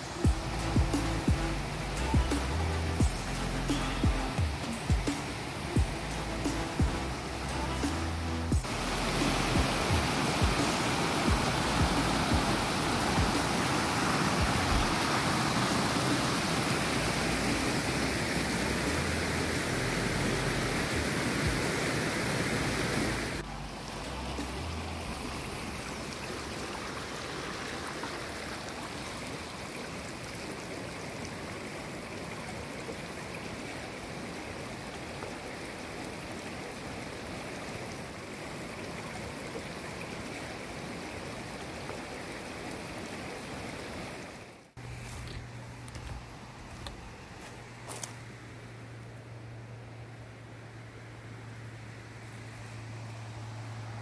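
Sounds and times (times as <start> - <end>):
creek water rushing over rocks: 0.0 - 54.0.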